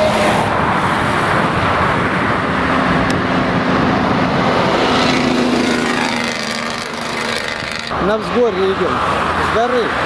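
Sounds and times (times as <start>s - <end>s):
road traffic passing: 0.0s - 10.0s
low engine drone: 1.6s - 8.0s.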